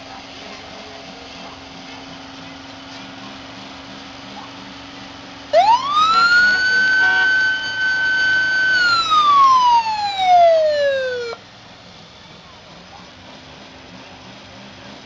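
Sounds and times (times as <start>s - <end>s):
car engine running: 0.0s - 15.0s
police siren wailing: 5.5s - 11.4s.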